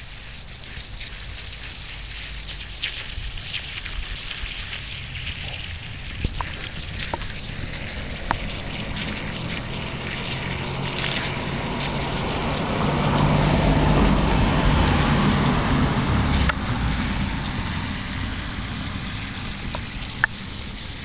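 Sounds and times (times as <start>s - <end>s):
fountain water splattering: 0.0s - 21.0s
low rumble: 4.8s - 21.0s.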